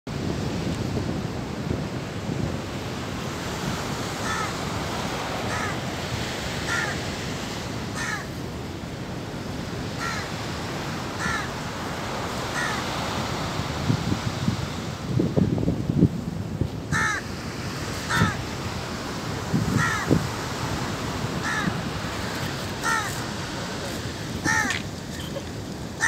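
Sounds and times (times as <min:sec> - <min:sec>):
bird calling: 0:22.8 - 0:23.3, 0:24.4 - 0:25.6.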